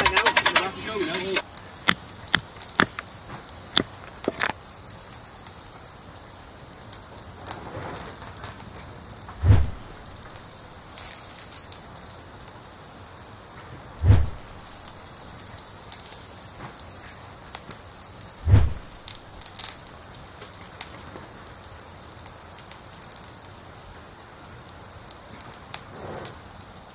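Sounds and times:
fine crackling noise: 0.0s - 26.9s
dull low thumps: 9.4s - 10.5s, 14.0s - 14.7s, 18.4s - 19.1s.

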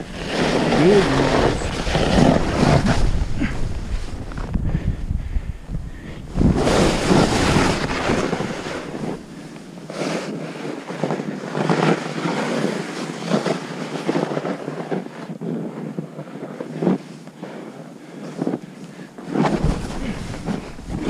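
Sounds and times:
snowboard scraping through snow: 0.0s - 5.0s, 5.9s - 18.6s, 19.2s - 21.0s
wind buffeting microphone: 0.0s - 9.9s, 19.5s - 21.0s.

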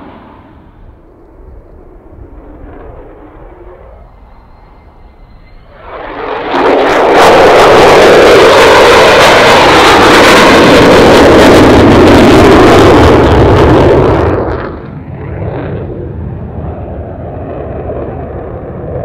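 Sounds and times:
dull jet rumble: 0.0s - 19.0s
loud jet roar: 0.0s - 19.0s.

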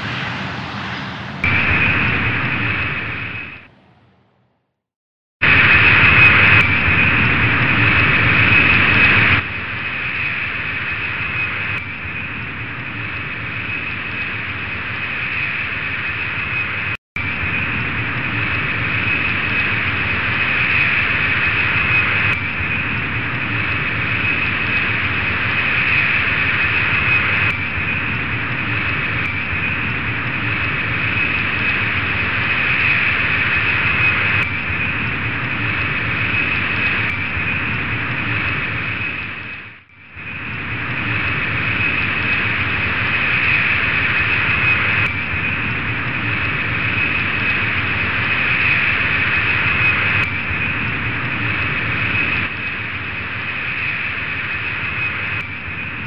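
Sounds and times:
jet engine whine and rush: 0.0s - 4.8s, 5.4s - 56.0s.

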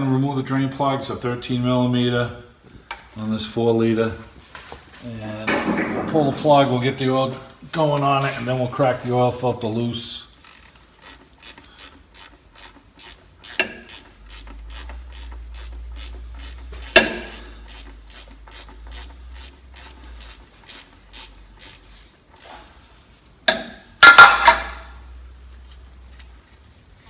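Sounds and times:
sharp knocks: 5.5s - 6.7s, 16.8s - 17.4s
ratchet wrench clicking: 10.4s - 22.5s.

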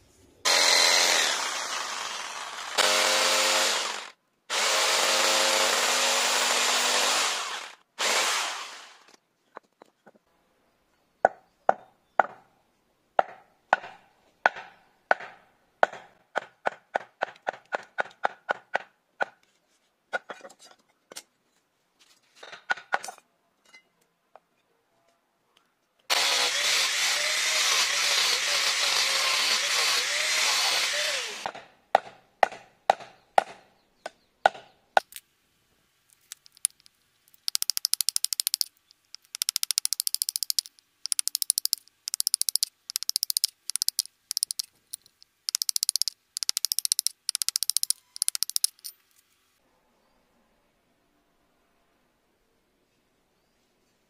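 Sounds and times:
knife chopping wood: 13.2s - 18.9s.

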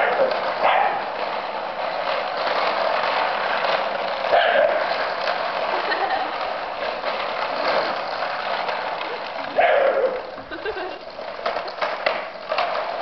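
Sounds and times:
dog barking: 0.0s - 1.1s, 4.3s - 4.9s, 9.6s - 10.2s
trolley wheels rattling over concrete: 0.0s - 13.0s.

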